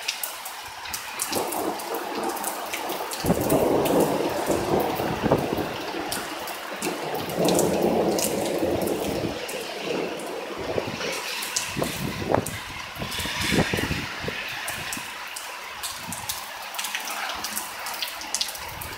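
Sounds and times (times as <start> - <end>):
heavy rain pouring: 0.0 - 18.9
gusting wind on microphone: 3.2 - 15.2, 15.8 - 16.4, 18.5 - 18.9.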